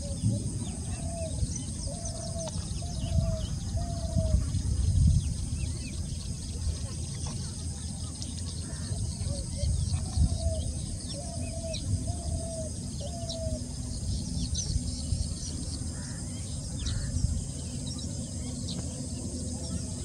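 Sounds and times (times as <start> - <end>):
low rumble on microphone: 0.0 - 20.0.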